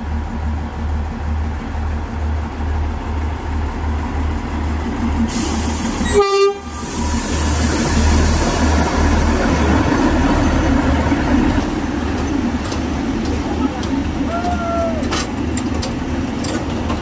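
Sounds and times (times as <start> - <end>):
diesel locomotive engine throbbing: 0.0 - 17.0
train wheels on rails: 0.0 - 17.0
train horn toot: 6.0 - 6.8.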